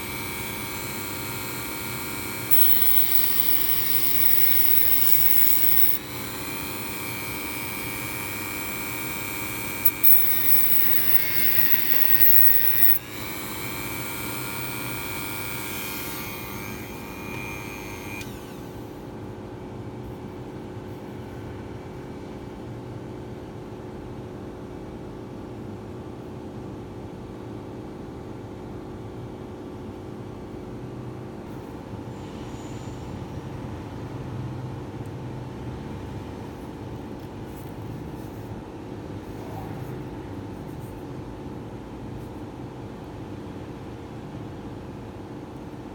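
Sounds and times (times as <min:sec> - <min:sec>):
steady low hum: 0:00.0 - 0:18.6
wire grinding against disc: 0:00.0 - 0:18.6
rotary tool spinning: 0:00.0 - 0:18.7.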